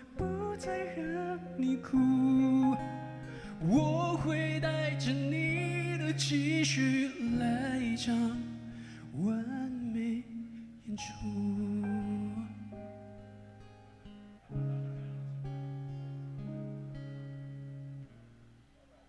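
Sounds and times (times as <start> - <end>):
man singing a slow ballad: 0.0 - 13.3
acoustic guitar: 0.0 - 19.0.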